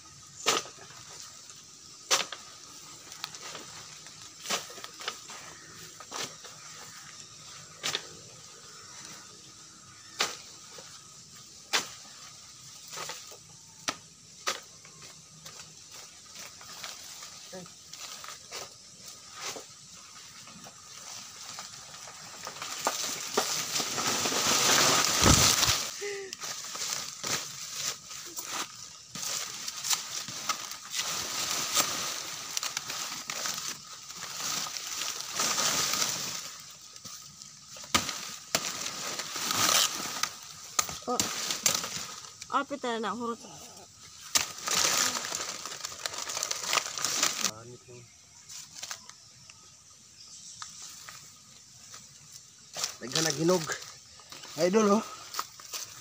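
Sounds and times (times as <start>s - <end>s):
footsteps on dry leaves: 15.6s - 42.4s, 44.3s - 47.5s, 52.6s - 56.0s
leaves rushing through canopy: 20.8s - 42.4s, 44.1s - 47.6s
heavy thud of falling plant: 24.2s - 25.9s.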